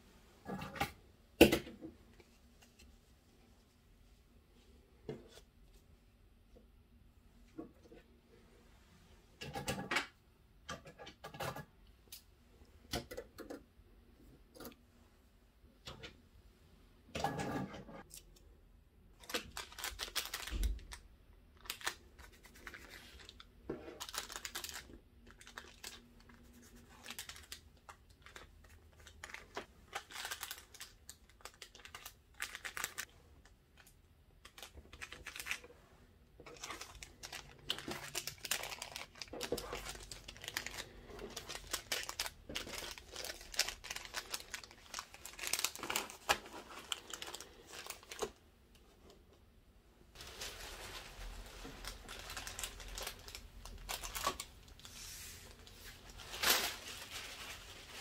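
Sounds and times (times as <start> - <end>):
plastic sleeves crinkling: 19.1 - 49.2, 50.1 - 58.0.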